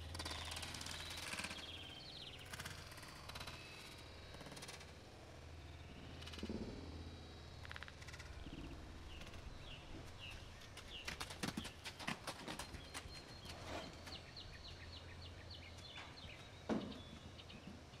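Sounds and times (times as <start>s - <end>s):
bird chirping: 0.1s - 4.8s, 7.6s - 18.0s
hooves clattering and thudding: 7.8s - 14.5s.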